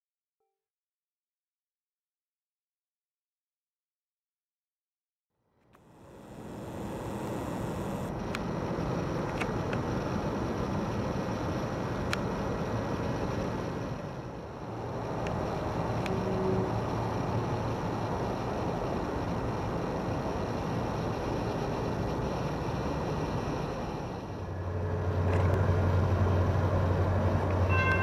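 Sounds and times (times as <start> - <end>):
approaching train rumble: 8.1 - 28.0
diesel locomotive idling: 9.7 - 28.0.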